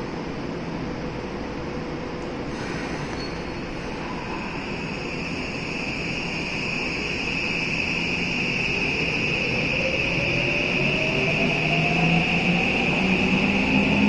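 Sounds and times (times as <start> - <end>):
train whine rising in pitch: 3.1 - 14.0.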